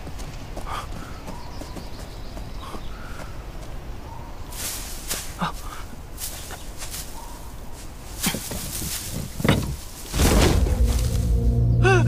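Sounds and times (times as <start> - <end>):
dry straw rustling and crunching: 4.5 - 11.5
footsteps: 4.5 - 11.5.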